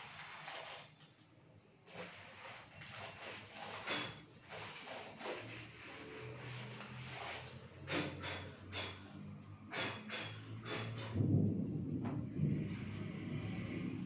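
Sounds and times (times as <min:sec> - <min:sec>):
duster wiping a chalkboard: 0:01.9 - 0:09.1
low rumble: 0:11.0 - 0:14.0.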